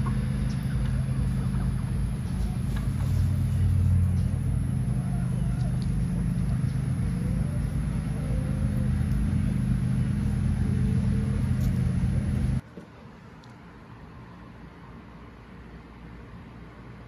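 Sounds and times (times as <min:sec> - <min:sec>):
low motor hum: 0:00.0 - 0:12.6
chickens calling: 0:02.3 - 0:12.6.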